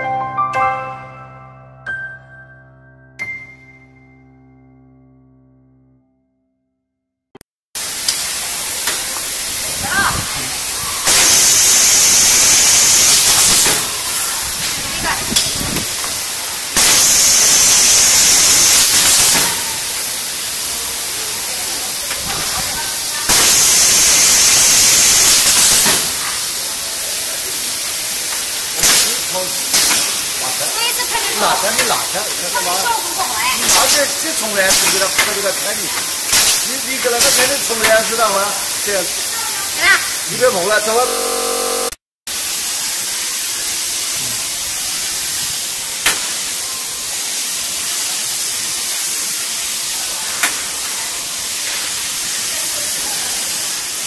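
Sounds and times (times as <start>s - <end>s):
sharp air blast: 7.8s - 20.8s, 22.2s - 26.6s, 28.4s - 30.7s, 33.6s - 35.4s, 36.1s - 38.0s
compressed air hissing: 7.8s - 54.0s.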